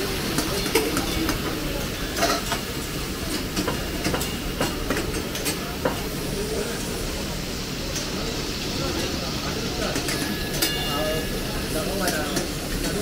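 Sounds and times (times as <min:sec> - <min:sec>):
steady hiss of cooking: 0:00.0 - 0:13.0
metal spatula clinking on pan: 0:10.0 - 0:11.4.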